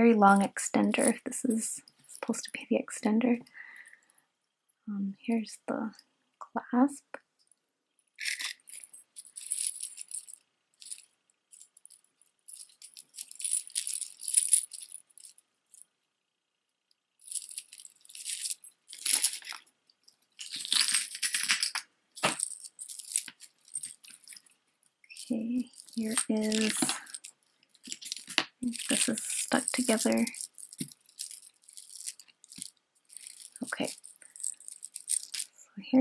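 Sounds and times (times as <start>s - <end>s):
metal jewelry clinking: 8.2s - 15.9s, 17.2s - 35.6s.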